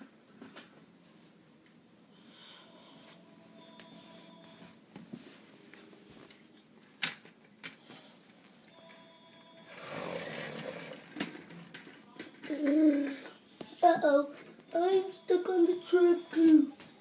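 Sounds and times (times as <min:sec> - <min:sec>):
toy wheels rolling on wooden floor: 0:09.6 - 0:13.3.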